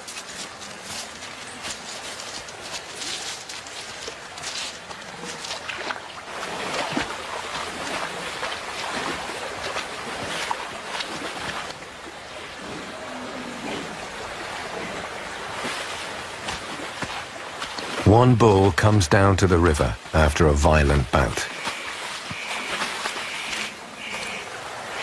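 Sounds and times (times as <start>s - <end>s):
splashes and scuffs: 0.0s - 11.8s, 15.4s - 18.1s, 21.5s - 24.4s.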